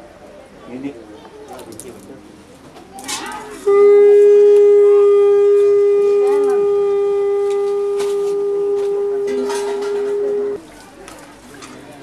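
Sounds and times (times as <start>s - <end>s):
faint voices: 0.0s - 12.0s
conch shell blown: 3.4s - 10.6s.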